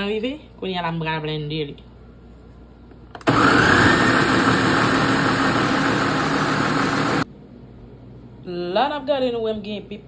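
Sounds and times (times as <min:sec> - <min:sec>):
blender motor running: 0:03.2 - 0:07.2.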